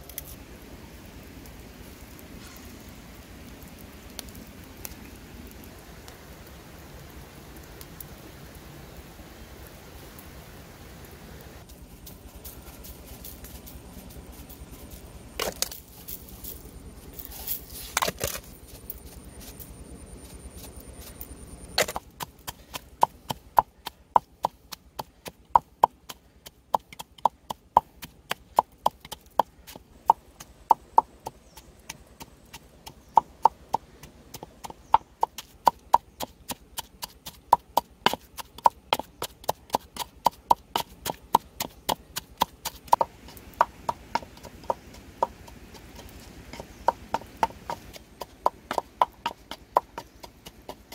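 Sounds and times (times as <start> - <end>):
pestle pounding in mortar: 21.8 - 50.9.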